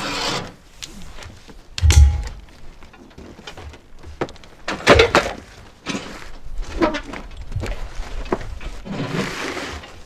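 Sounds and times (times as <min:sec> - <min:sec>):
cardboard box scraping: 0:08.8 - 0:10.0.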